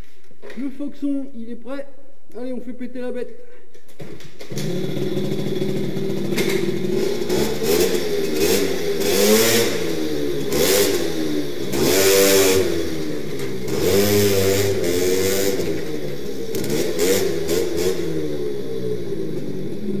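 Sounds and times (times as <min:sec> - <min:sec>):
moped engine revving: 0:04.4 - 0:20.0.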